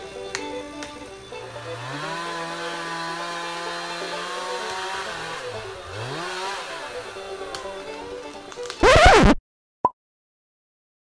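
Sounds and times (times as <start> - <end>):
chainsaw engine revving: 1.4 - 7.9, 8.8 - 9.3.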